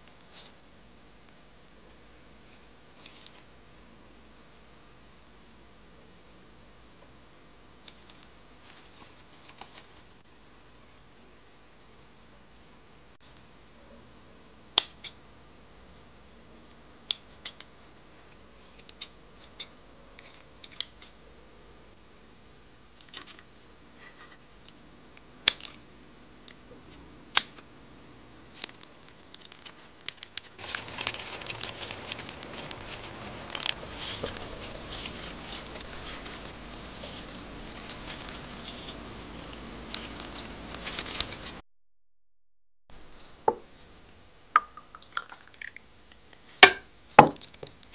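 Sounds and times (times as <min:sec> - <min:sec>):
crackling of shrimp handled: 0:28.5 - 0:36.5.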